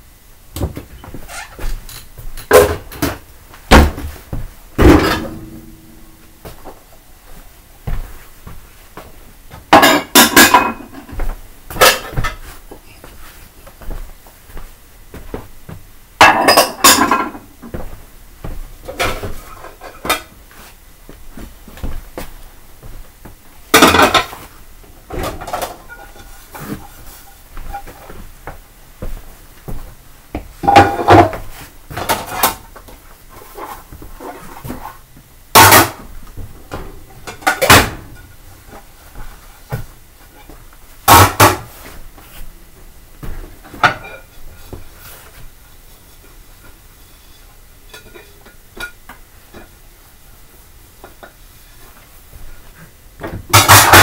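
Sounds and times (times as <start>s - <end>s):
dishes clattering: 4.8s - 6.1s, 9.7s - 12.4s, 16.2s - 17.5s, 23.7s - 24.3s, 25.1s - 26.9s, 30.6s - 31.4s, 36.8s - 38.3s, 43.7s - 44.4s, 53.5s - 54.0s
dishes clinking: 4.8s - 6.1s, 9.7s - 11.2s, 16.2s - 17.5s, 30.6s - 31.4s, 43.8s - 44.4s, 47.9s - 49.0s.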